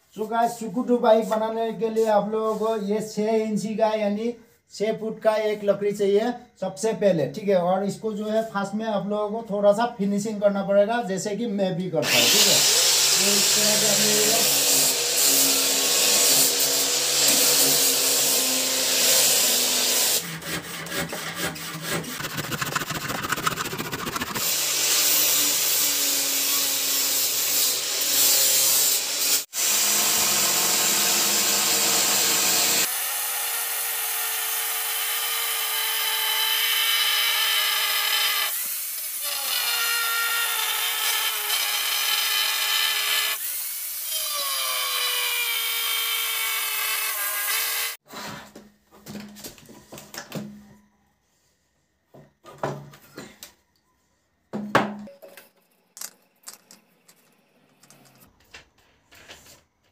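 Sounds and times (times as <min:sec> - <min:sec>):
angle grinder grinding wood: 0:12.0 - 0:48.0
rough rasping strokes: 0:17.2 - 0:24.6.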